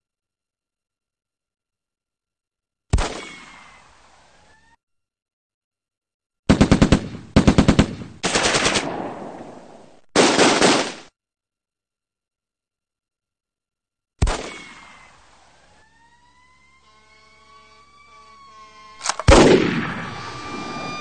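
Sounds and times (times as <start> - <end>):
automatic machine-gun fire: 6.5 - 11.1, 19.0 - 20.8.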